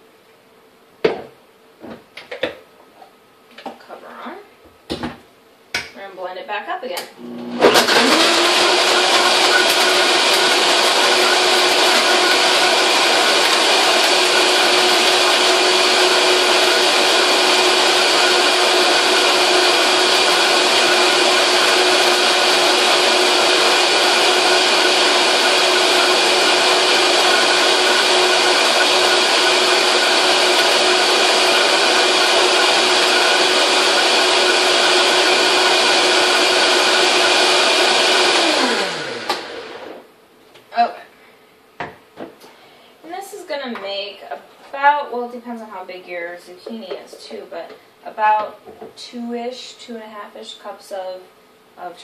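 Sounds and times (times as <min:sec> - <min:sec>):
blender running: 0:07.2 - 0:40.1.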